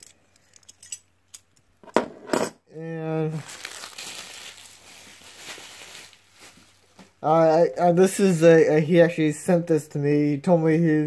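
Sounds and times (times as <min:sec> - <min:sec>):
handling rustle: 0:03.4 - 0:07.2.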